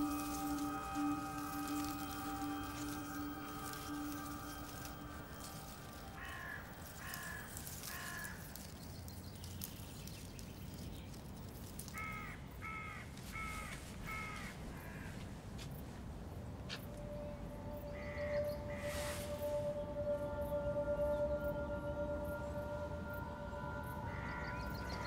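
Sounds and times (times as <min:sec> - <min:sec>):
low outdoor rumble: 0:00.0 - 0:11.8
crow cawing: 0:05.8 - 0:08.4.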